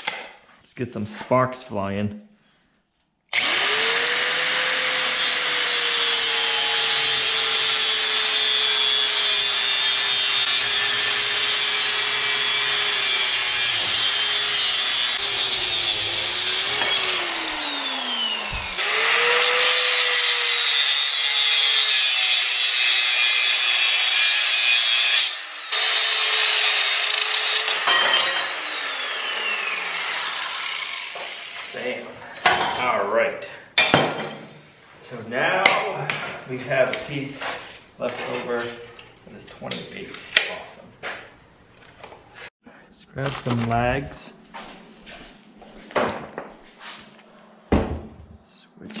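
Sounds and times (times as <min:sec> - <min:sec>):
angle grinder whining: 0:03.3 - 0:32.0
grinding wheel cutting steel: 0:03.4 - 0:31.9.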